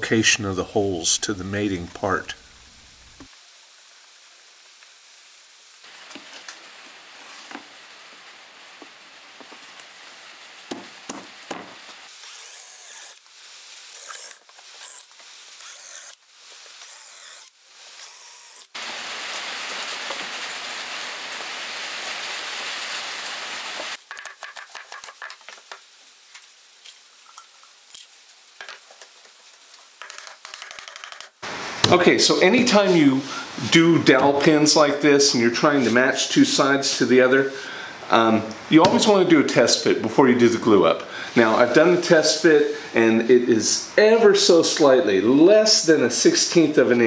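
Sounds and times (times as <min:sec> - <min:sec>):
cordless drill boring wood: 0:12.2 - 0:13.2, 0:13.9 - 0:16.2, 0:16.8 - 0:18.7
small rapid taps and clicks: 0:24.0 - 0:25.8.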